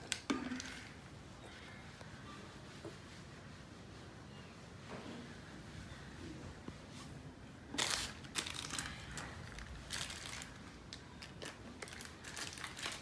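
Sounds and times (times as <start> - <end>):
plastic packaging crinkling: 7.7 - 13.0.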